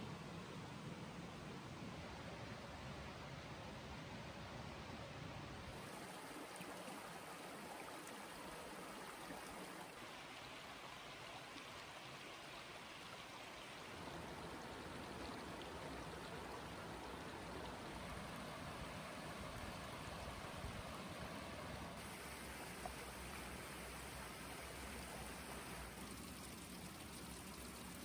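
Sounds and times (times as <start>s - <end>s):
stream running: 5.7s - 28.0s.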